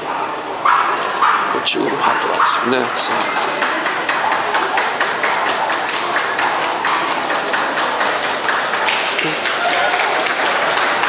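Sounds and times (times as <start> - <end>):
crowd noise: 0.0 - 11.0
spectators clapping: 2.3 - 11.0.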